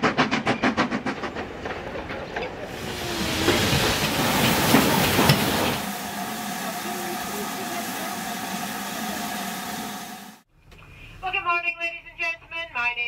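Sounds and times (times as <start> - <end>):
hiss of venting steam: 2.7 - 10.4
steam locomotive exhaust chuffs: 2.7 - 10.5.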